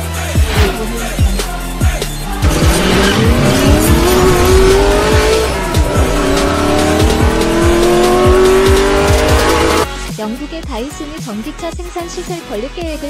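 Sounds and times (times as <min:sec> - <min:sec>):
music with drum beat: 0:00.0 - 0:13.0
car engine revving effect: 0:02.2 - 0:09.9.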